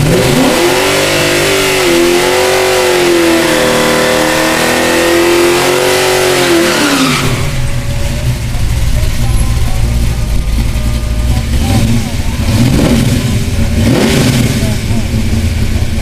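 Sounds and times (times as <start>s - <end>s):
car engine revving: 0.0s - 16.0s
tyres spinning: 4.5s - 16.0s.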